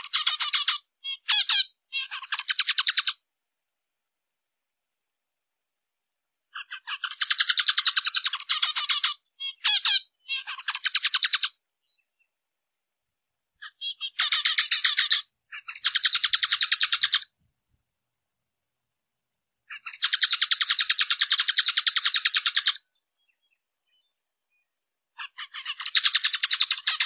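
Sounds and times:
finch calling: 0.0s - 3.2s, 6.6s - 12.0s, 13.6s - 17.3s, 19.7s - 24.1s, 25.2s - 27.0s.

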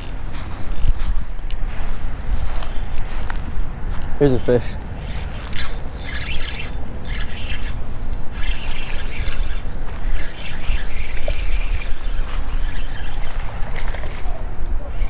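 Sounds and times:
fishing reel cranking: 0.0s - 1.1s, 5.0s - 15.0s
wind rumbling on microphone: 0.0s - 15.0s.

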